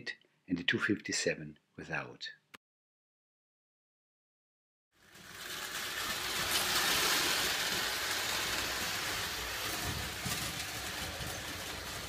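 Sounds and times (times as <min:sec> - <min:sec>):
toy trains whirring and rattling: 0:05.0 - 0:12.0.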